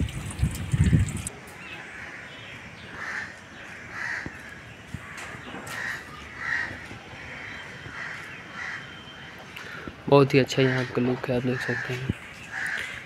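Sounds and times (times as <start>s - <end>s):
crows cawing: 1.8s - 9.9s, 10.6s - 13.0s.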